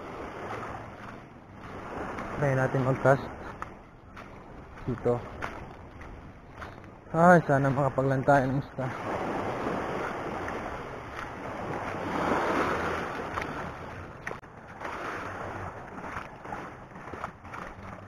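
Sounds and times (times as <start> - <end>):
waves lapping on pebbles: 0.0 - 18.0.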